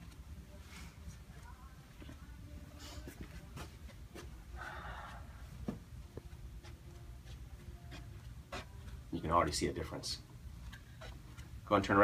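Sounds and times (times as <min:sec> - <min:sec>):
low steady hum: 0:00.0 - 0:12.0
footsteps on carpet: 0:03.0 - 0:04.4, 0:05.5 - 0:09.1.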